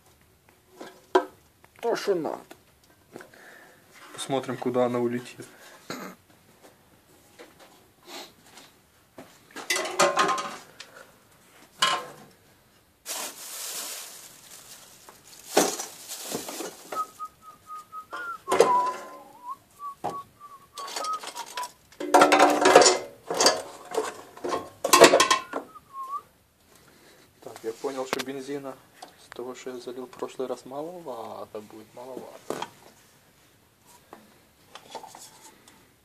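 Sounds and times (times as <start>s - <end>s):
person whistling a tune: 16.9s - 21.7s, 25.4s - 26.2s
metal tools clinking: 20.8s - 25.6s.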